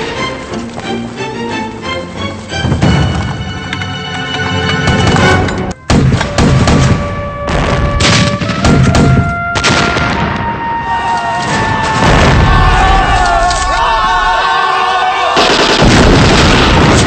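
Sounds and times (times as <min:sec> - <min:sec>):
dramatic background music: 0:00.0 - 0:13.9
heavy explosions: 0:04.9 - 0:10.8, 0:11.5 - 0:13.5, 0:15.4 - 0:17.0.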